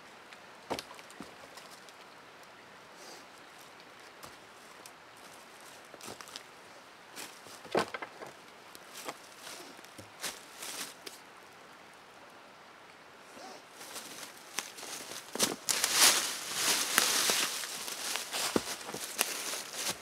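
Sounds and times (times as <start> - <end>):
footsteps in dry leaves: 8.9 - 11.0, 13.8 - 20.0.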